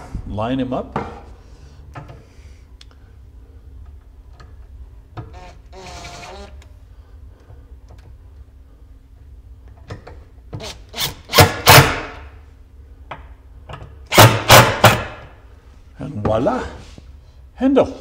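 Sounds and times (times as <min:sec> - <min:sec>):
impact driver driving screws: 0:05.3 - 0:06.6, 0:10.6 - 0:12.2, 0:14.1 - 0:15.2.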